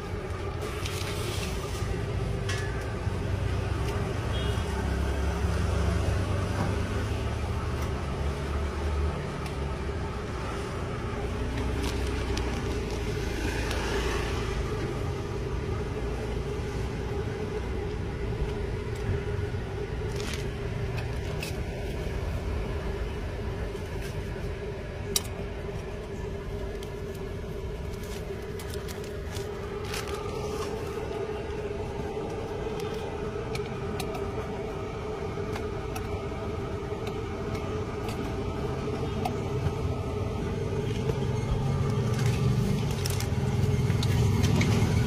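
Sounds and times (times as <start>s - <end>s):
constant low hum: 0.0s - 45.0s
street traffic rumble: 0.0s - 45.0s
vehicle passing: 10.4s - 15.8s.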